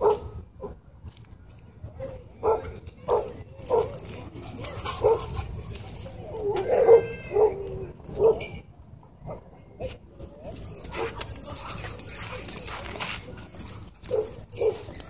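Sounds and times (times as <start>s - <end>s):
large dogs barking: 2.4s - 8.5s, 10.5s - 15.0s.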